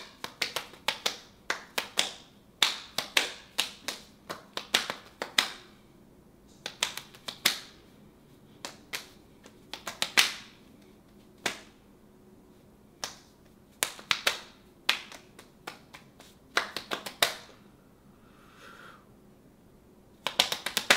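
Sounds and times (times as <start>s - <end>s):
hands slapping skin: 0.0s - 5.7s, 6.5s - 7.8s, 8.6s - 11.8s, 13.0s - 17.6s, 20.2s - 20.9s.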